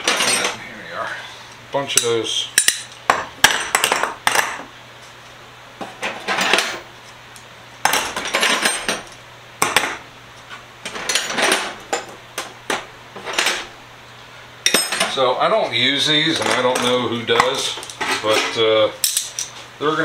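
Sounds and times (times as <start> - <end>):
steel wrenches clinking: 0.0 - 0.6.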